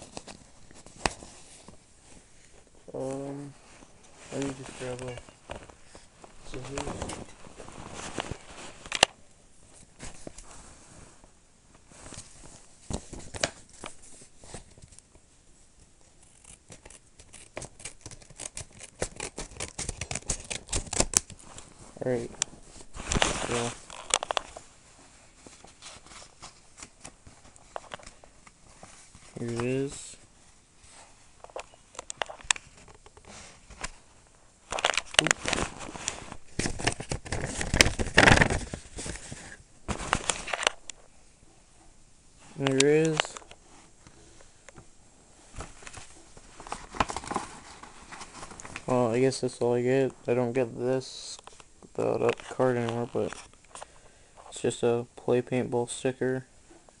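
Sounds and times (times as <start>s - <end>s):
packaging rustling and crinkling: 0.0s - 9.1s, 16.8s - 30.1s, 30.9s - 41.0s, 45.5s - 49.1s.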